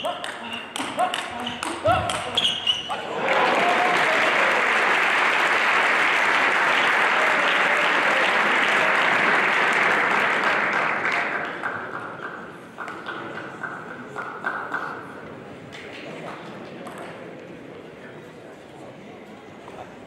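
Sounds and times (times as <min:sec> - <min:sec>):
audience applauding: 0:02.9 - 0:13.2.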